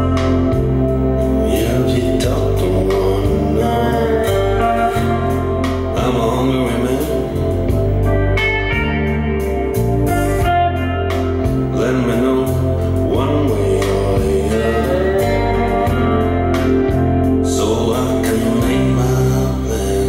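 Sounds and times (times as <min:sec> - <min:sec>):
heavy bass: 0:00.0 - 0:20.0
song with singing voice: 0:00.0 - 0:20.0.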